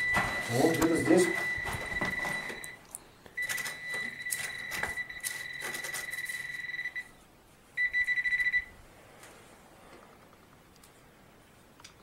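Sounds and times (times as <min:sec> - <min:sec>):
metal detector beeping: 0:00.0 - 0:02.8, 0:03.4 - 0:07.1, 0:07.8 - 0:08.7.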